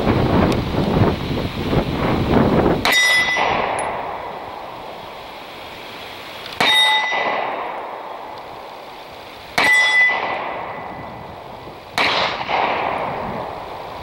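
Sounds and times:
steel target ringing: 2.8s - 4.4s, 6.6s - 8.2s, 9.6s - 11.2s
pistol shots: 6.6s - 8.0s, 12.0s - 13.2s.

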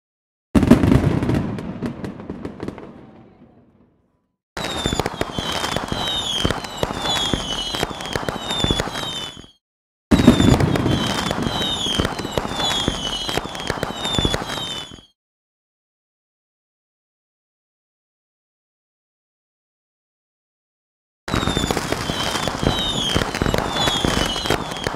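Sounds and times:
fireworks crackling pops: 4.6s - 15.2s, 21.3s - 24.9s
short falling whistles: 4.6s - 15.2s, 21.3s - 24.9s.

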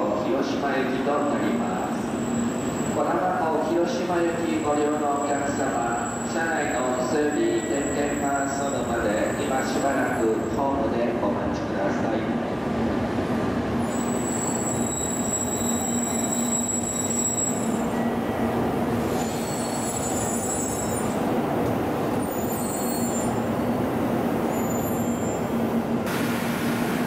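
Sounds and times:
train equipment hum and hiss: 0.0s - 27.0s.

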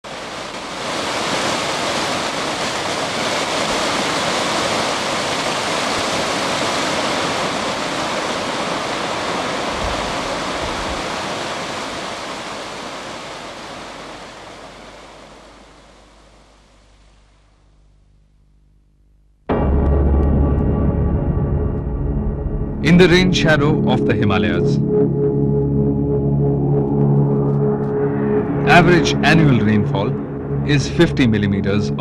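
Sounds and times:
water rushing over rocks: 0.0s - 16.4s.

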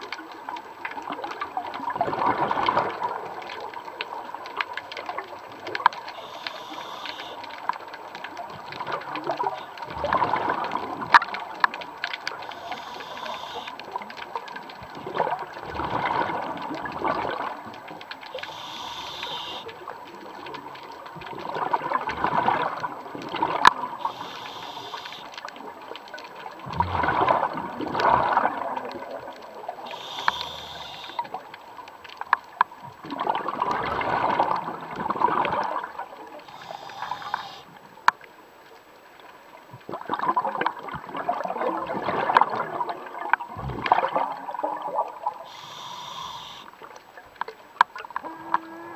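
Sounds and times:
exhaled bubbles rushing: 1.1s - 5.7s, 8.5s - 14.0s, 14.8s - 20.5s, 21.1s - 24.8s, 26.3s - 31.8s, 32.9s - 37.6s, 39.8s - 46.6s
regulator hiss on inhale: 6.1s - 7.5s, 12.4s - 13.8s, 18.4s - 19.8s, 24.0s - 25.4s, 29.9s - 31.4s, 36.4s - 37.8s, 45.4s - 46.8s
sharp clicks: 29.9s - 31.3s.

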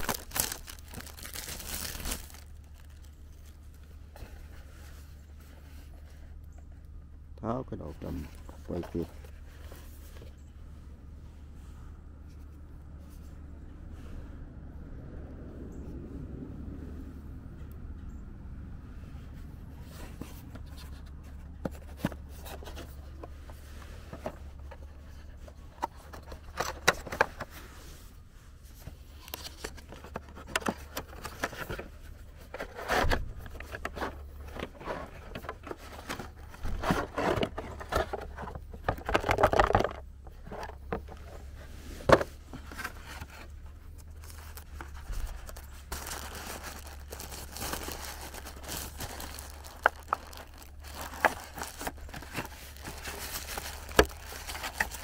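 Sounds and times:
plastic bag crinkling: 0.0s - 3.8s, 44.0s - 55.0s
cardboard box scraping and tapping: 29.3s - 43.6s.

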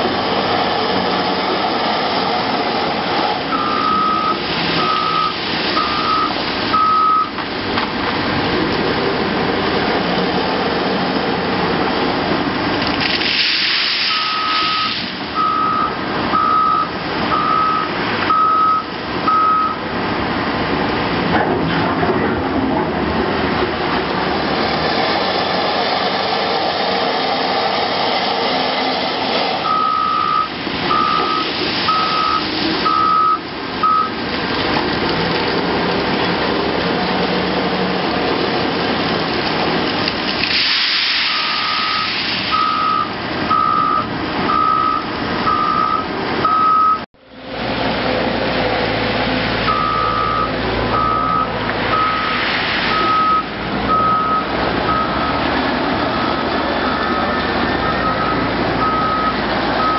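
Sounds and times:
heavy diesel engines under load: 0.0s - 59.9s
reversing alarm beeping: 3.5s - 7.4s, 14.1s - 19.8s, 29.6s - 34.2s, 41.3s - 47.0s, 49.7s - 55.4s, 56.1s - 59.9s
gravel pouring into truck body: 12.9s - 15.3s, 40.2s - 42.5s.

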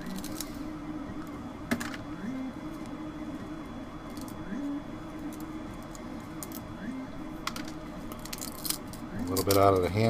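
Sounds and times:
plastic snapping and crackling: 7.4s - 9.9s.

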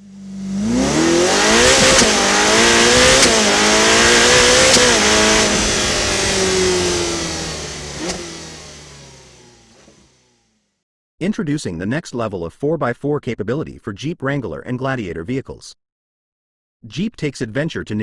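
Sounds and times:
car engine accelerating: 0.0s - 10.7s.

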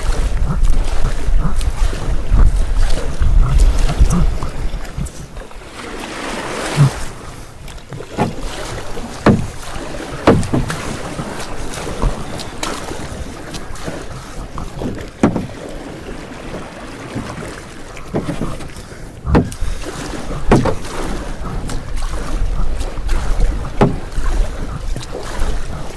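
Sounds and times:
light wind noise: 0.0s - 8.4s
paddles stroking through water: 0.0s - 25.9s.

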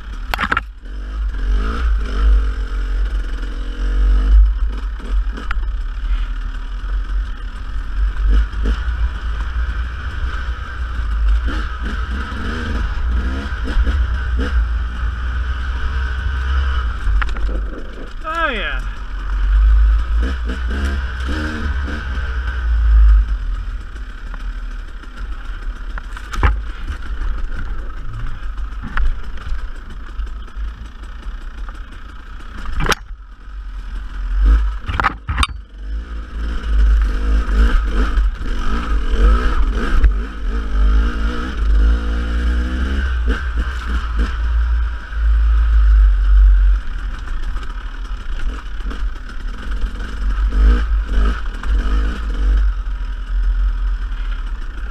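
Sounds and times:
dirt bike engine revving: 0.0s - 54.9s
bike knocking and clattering: 23.8s - 33.4s, 34.6s - 35.7s.

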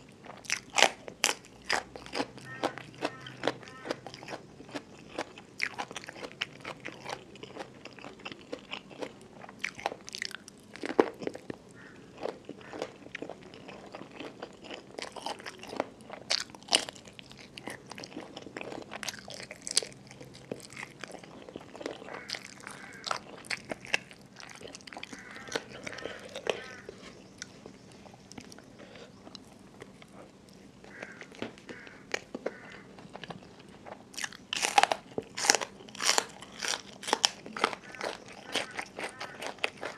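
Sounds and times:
person chewing wetly: 0.0s - 39.9s
sharp crunches while eating: 0.3s - 27.6s, 28.3s - 39.9s.

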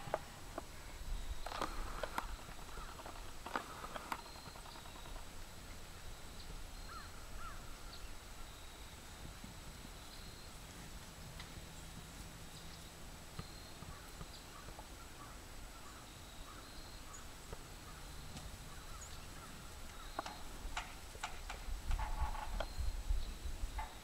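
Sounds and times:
cattle hoof steps: 1.4s - 5.3s.

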